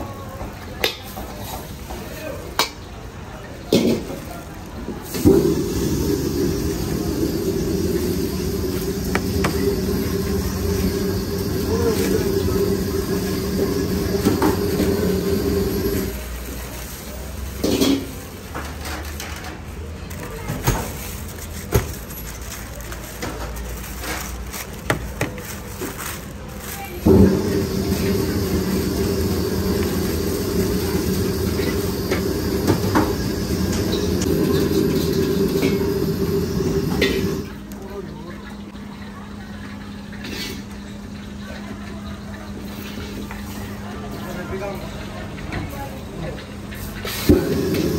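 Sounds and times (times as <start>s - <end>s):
low machine hum: 4.9s - 18.1s, 25.6s - 47.9s.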